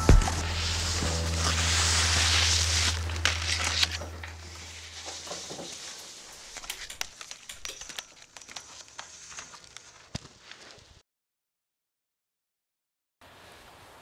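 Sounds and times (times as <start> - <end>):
music: 0.0 - 5.2
faint crackling clicks: 6.0 - 10.8.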